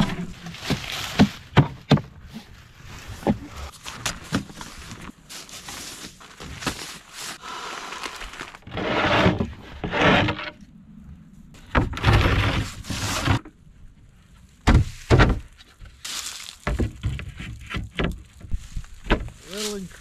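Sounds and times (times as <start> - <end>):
wooden panels scraping and rattling: 8.4 - 10.6, 11.6 - 13.5, 16.6 - 19.4.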